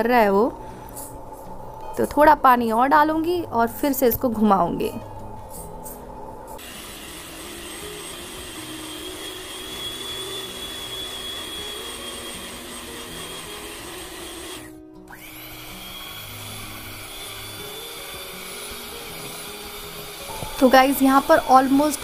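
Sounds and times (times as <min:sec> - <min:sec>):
background music: 0:00.0 - 0:22.0
electric hand mixer whining: 0:06.6 - 0:22.0.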